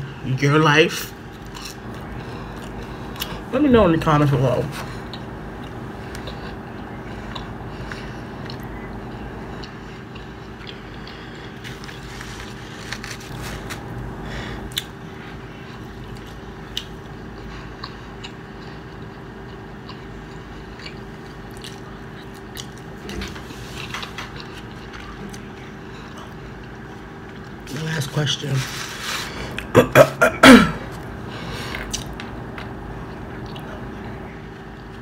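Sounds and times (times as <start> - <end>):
chewing with wet mouth clicks: 7.3 - 8.9, 9.5 - 12.0, 15.7 - 23.2, 31.7 - 33.7.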